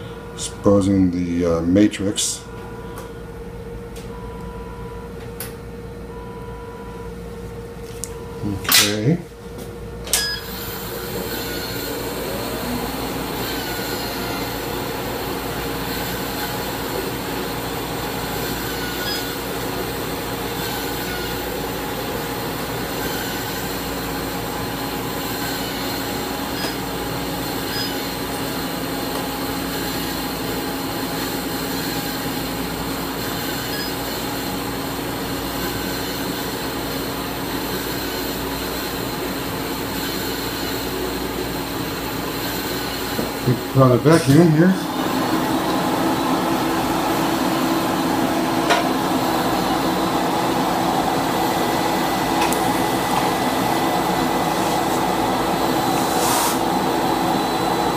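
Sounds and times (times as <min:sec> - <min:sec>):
vacuum motor whirring: 0:10.1 - 0:57.9.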